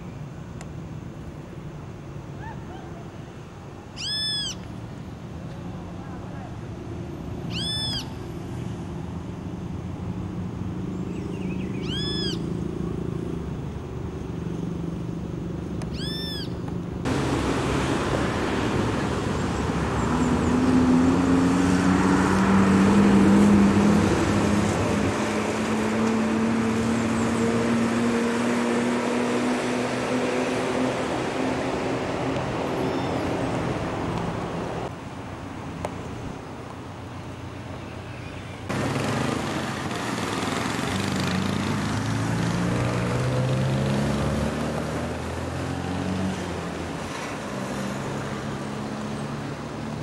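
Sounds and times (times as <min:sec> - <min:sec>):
low traffic engine hum: 0:00.0 - 0:50.0
short high chirping calls: 0:03.9 - 0:04.7, 0:07.5 - 0:08.2, 0:11.1 - 0:12.5, 0:15.9 - 0:16.6
vehicle engine passing: 0:08.2 - 0:34.9, 0:38.7 - 0:50.0.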